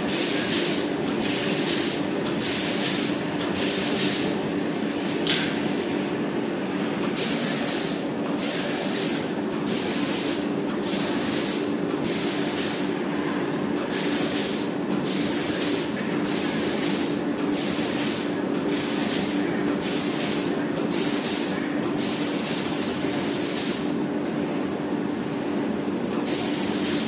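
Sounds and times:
spray gun hissing blasts: 7.2 - 12.9.

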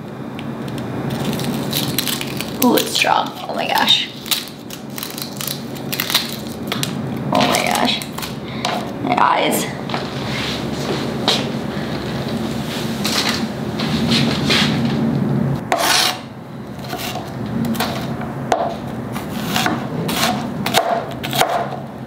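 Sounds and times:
steady low hum: 0.0 - 22.0
knife cutting onion on board: 15.7 - 16.2, 16.8 - 21.8.

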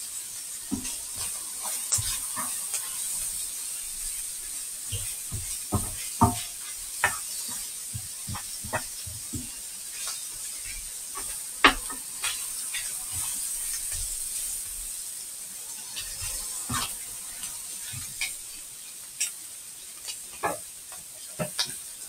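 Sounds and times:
food sizzling in a frying pan: 0.0 - 22.0
utensil knocking against pan: 4.9 - 7.4, 8.0 - 9.6, 11.2 - 12.4.

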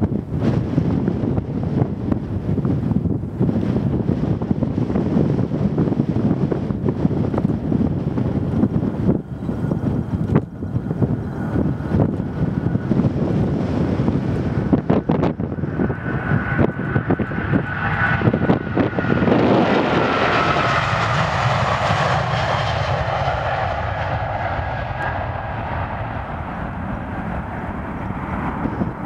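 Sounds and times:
jet engine whine: 0.0 - 29.0
jet engines at takeoff: 0.0 - 29.0
wind buffeting microphone: 0.0 - 29.0.

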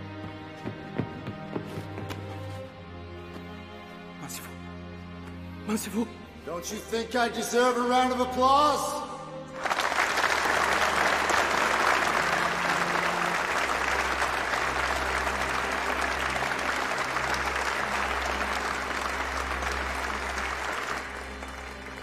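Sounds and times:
crowd applauding: 9.6 - 22.0.

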